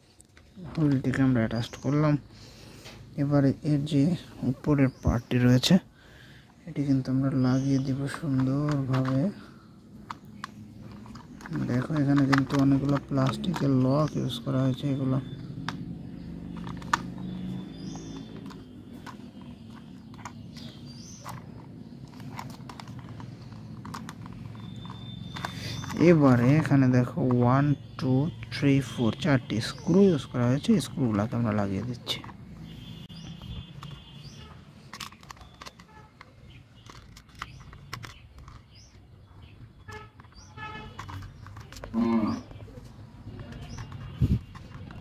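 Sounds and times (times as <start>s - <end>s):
bird chirps: 0.5s - 45.0s
hands handling plastic toy: 6.5s - 45.0s
plastic tabs clicking into place: 7.6s - 14.4s, 15.6s - 27.5s, 34.9s - 39.0s
faint animal call: 41.9s - 42.5s.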